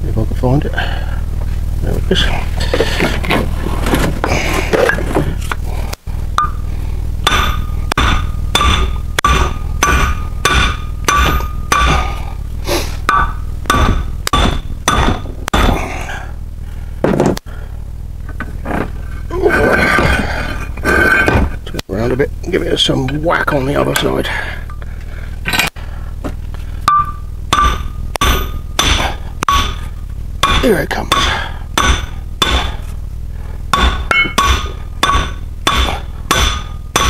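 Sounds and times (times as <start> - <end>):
hammer striking metal: 7.2 - 12.1, 13.1 - 15.8, 26.8 - 32.9, 33.7 - 37.0.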